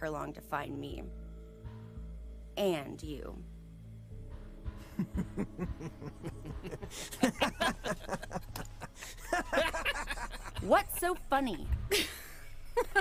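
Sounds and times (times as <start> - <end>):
people laughing: 4.9 - 13.0.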